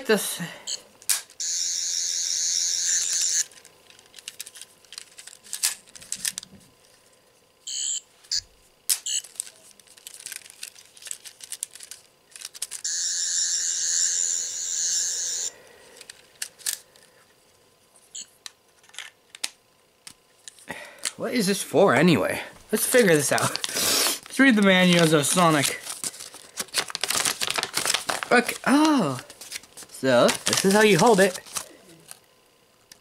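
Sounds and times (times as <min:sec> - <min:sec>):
toy electronic buzzing: 0:00.7 - 0:03.6, 0:07.6 - 0:09.4, 0:12.3 - 0:16.8.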